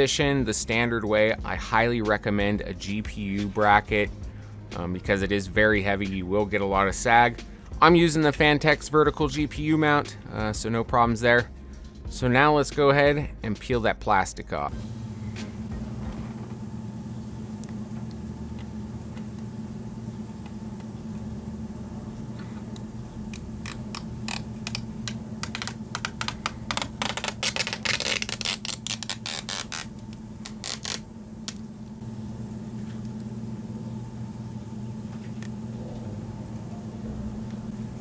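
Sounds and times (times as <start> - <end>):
steady low hum: 14.4 - 38.0
plastic film peeling and crinkling: 23.6 - 31.6.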